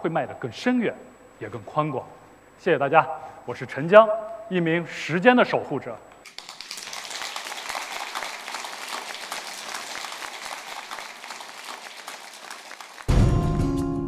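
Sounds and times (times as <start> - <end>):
audience applauding: 6.3 - 13.2.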